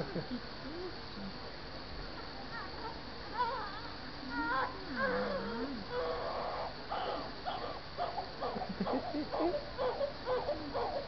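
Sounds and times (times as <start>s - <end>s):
newborn baby crying: 9.4s - 11.0s.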